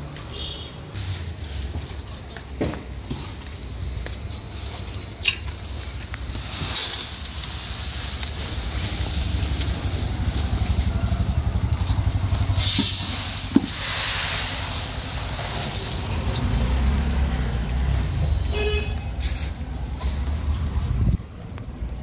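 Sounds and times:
vehicle engine running: 7.3s - 13.7s
car horn toot: 18.3s - 19.1s.

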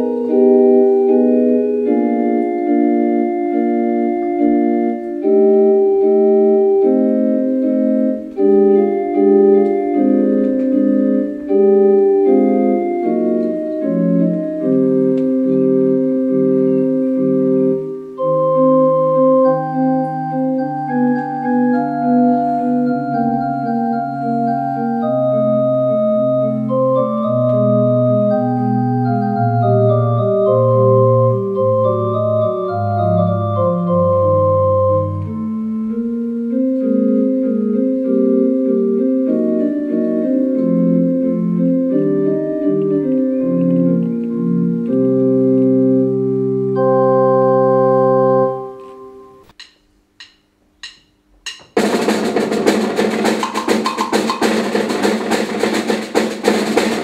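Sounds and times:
keyboard bass line: 0.0s - 49.6s
electronic keyboard chords: 0.0s - 49.7s.

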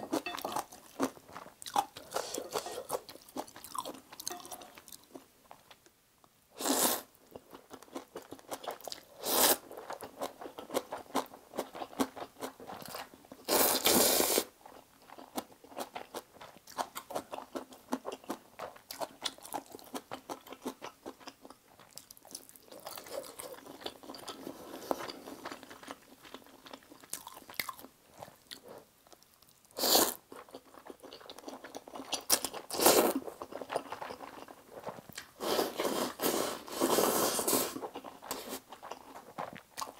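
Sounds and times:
wet chewing: 0.0s - 5.2s, 37.2s - 39.9s
noodle slurping: 35.4s - 38.6s.

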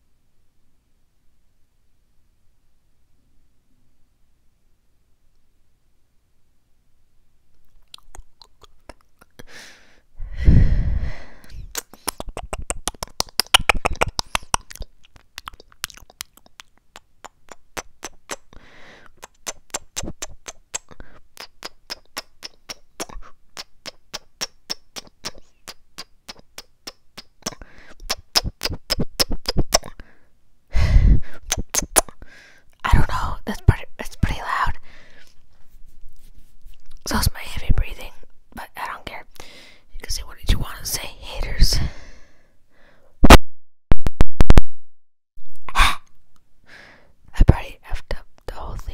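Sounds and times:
tongue and lip clicks: 7.5s - 9.5s, 11.5s - 30.0s, 31.3s - 35.4s, 36.1s - 37.8s.

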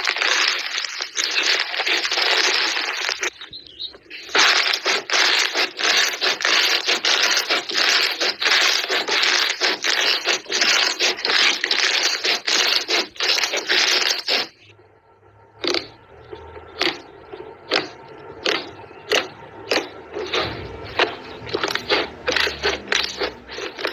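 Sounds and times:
slime crackling when kneaded: 0.0s - 14.6s.

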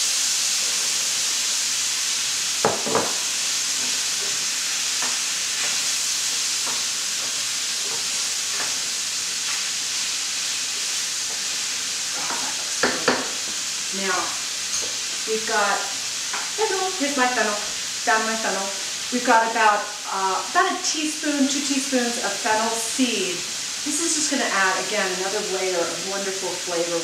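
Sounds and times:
meat sizzling in a pan: 0.0s - 27.0s
bowl and spoon knocking on pan: 2.6s - 3.2s, 12.8s - 13.4s.

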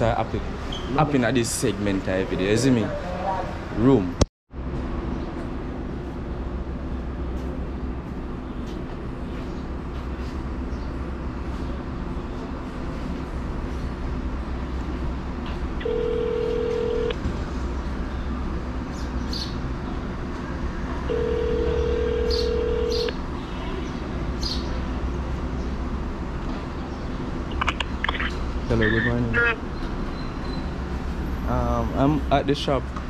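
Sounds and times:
telephone ringback beeps: 15.8s - 17.1s, 21.1s - 23.1s.

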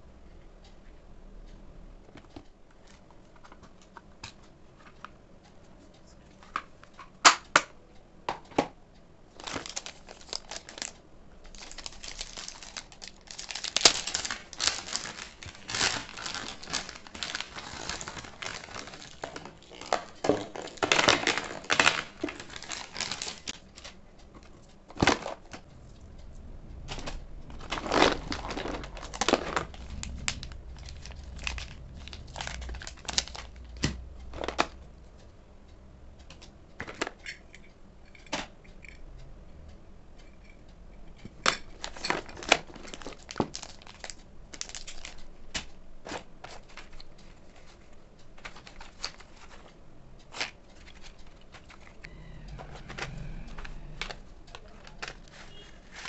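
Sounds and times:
plastic packaging crinkling: 9.4s - 24.0s, 26.9s - 34.8s, 41.5s - 47.8s.

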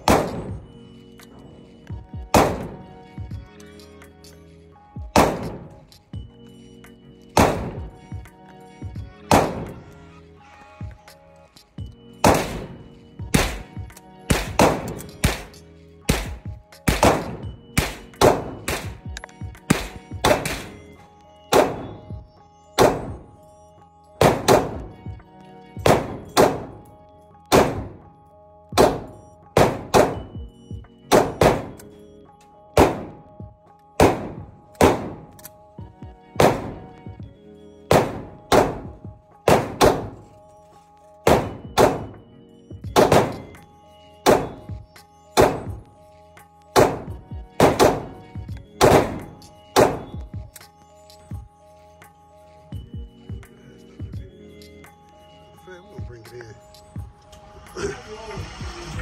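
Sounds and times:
background music: 0.0s - 59.0s
pistol shots ringing indoors: 36.4s - 36.8s, 37.9s - 38.8s, 43.0s - 43.5s, 44.3s - 44.6s.

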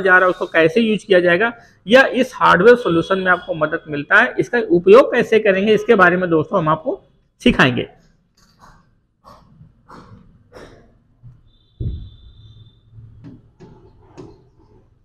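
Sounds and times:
marker squeak: 8.0s - 10.8s
marker scratching on whiteboard: 8.0s - 10.9s, 13.1s - 15.0s.

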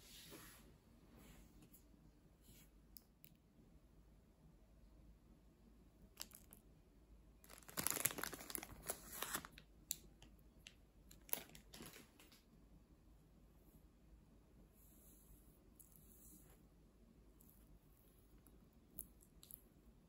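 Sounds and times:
plastic wrapper crinkling: 6.2s - 6.6s, 7.4s - 10.1s, 11.1s - 12.4s.

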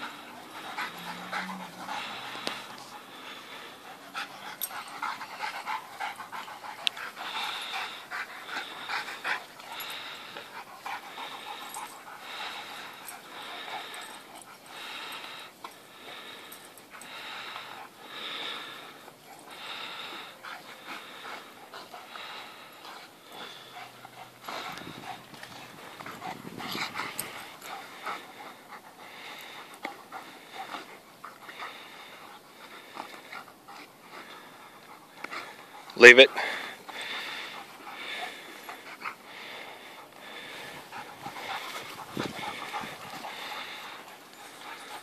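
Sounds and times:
dogs panting: 0.0s - 45.0s.

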